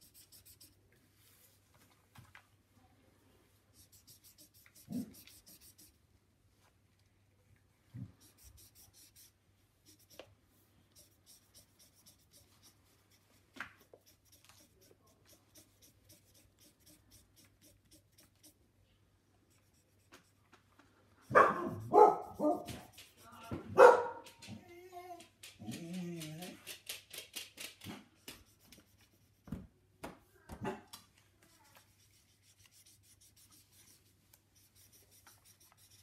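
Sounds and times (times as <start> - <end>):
marker scratching on paper: 0.0 - 0.8, 3.8 - 6.0, 8.0 - 10.2, 10.9 - 18.6, 19.5 - 20.4, 21.2 - 24.3, 28.2 - 29.5, 31.5 - 36.0
dog barking: 21.3 - 22.8, 23.7 - 24.4.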